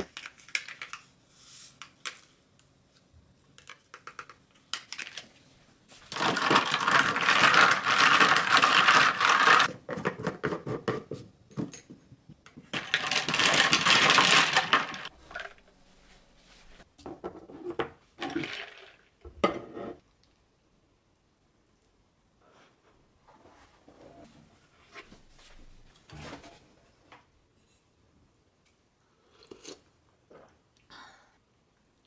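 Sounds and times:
ice cubes rattling in jar: 6.1 - 9.7, 12.7 - 15.5, 18.2 - 19.0.

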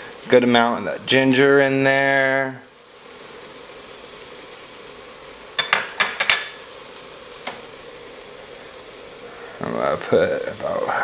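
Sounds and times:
food sizzling in a pot: 0.0 - 11.0
spoon knocking against pot: 5.6 - 6.6.

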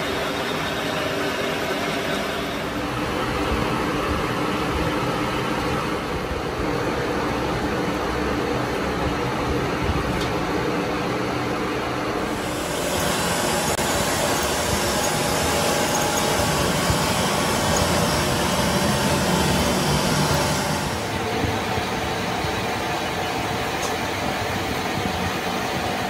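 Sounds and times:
machine hiss: 12.2 - 21.4.

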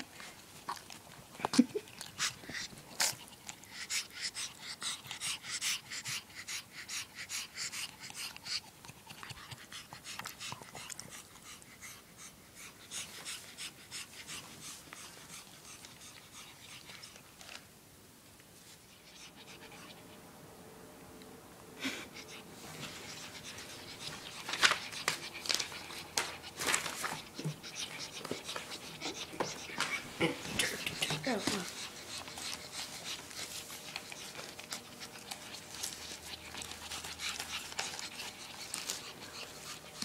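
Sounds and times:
dog panting: 0.0 - 17.6, 18.8 - 20.3, 21.8 - 40.0.

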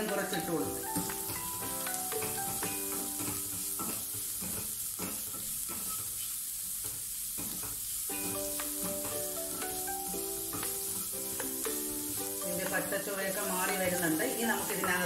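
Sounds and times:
background music: 0.0 - 3.8, 8.1 - 15.0
food sizzling in oil: 0.0 - 15.0.

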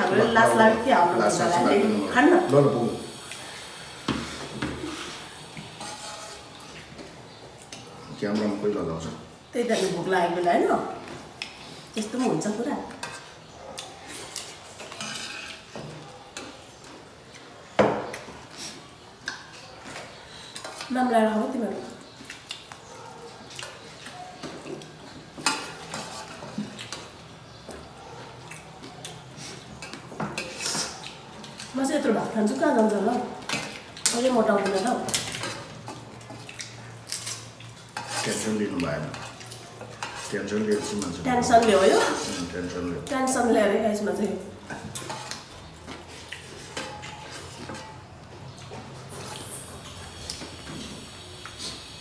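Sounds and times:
spoon scraping in brass bowl: 4.9 - 6.6, 14.8 - 15.7, 38.0 - 38.5, 49.1 - 50.2.

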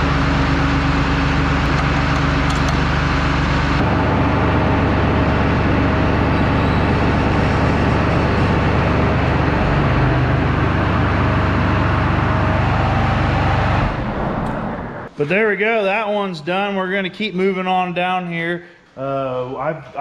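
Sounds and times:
engine running: 0.0 - 15.2.

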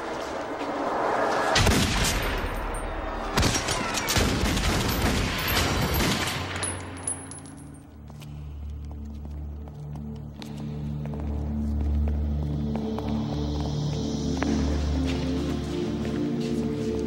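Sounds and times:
rushing noise: 0.0 - 3.4.

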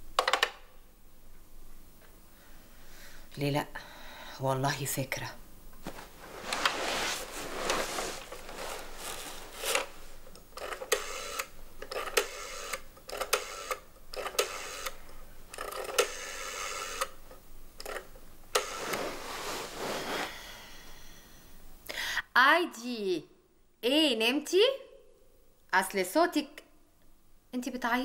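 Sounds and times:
rotary phone dial whirring and clicking: 10.6 - 17.2, 17.8 - 19.0.

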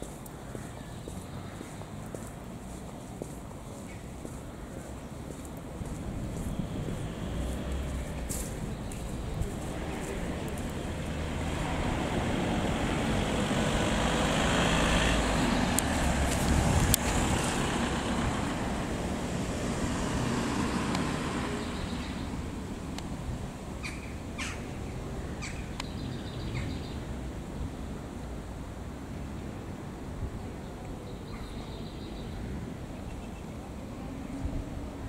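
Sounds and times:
vehicle passing: 0.0 - 27.4.

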